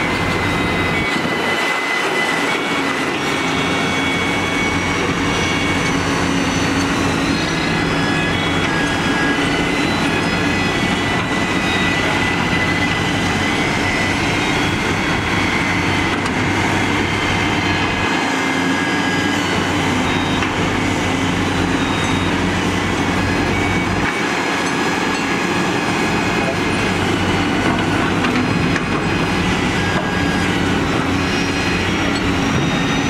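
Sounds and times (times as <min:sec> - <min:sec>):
dump trucks idling: 0:00.0 - 0:33.0
excavators digging: 0:00.0 - 0:33.0
machinery whining: 0:00.0 - 0:33.0.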